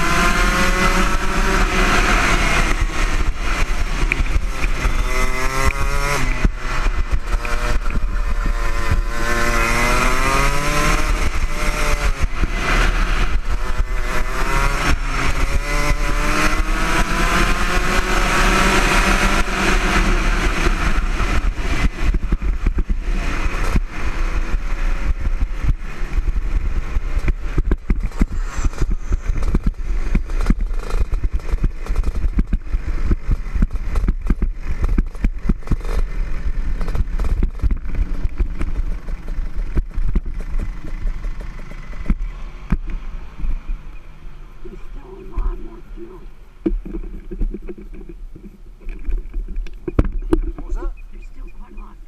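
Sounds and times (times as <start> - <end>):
low rumble: 0.0 - 18.3, 19.0 - 52.0
kart engine slowing: 0.0 - 50.8
kart knocks and rattles: 13.3 - 43.6.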